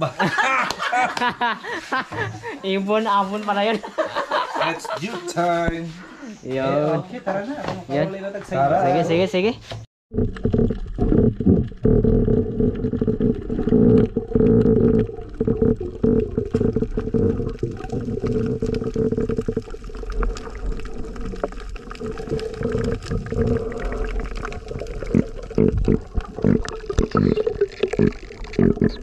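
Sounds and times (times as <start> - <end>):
underwater gurgling water: 10.1 - 29.0.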